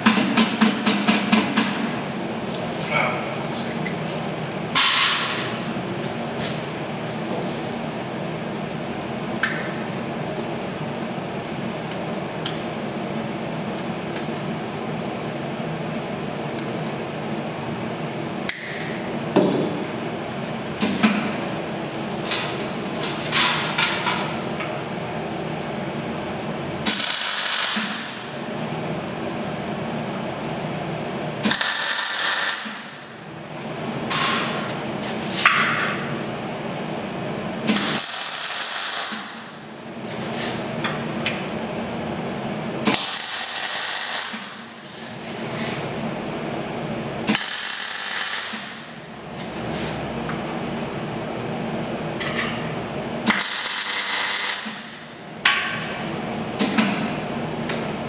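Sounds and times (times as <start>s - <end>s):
welding arc crackle: 26.8s - 28.1s, 31.4s - 32.9s, 37.7s - 39.4s, 42.9s - 44.6s, 47.3s - 48.8s, 53.3s - 54.9s
welder hum: 26.8s - 28.2s, 31.4s - 33.0s, 37.7s - 39.4s, 42.9s - 44.6s, 47.3s - 48.8s, 53.2s - 55.0s.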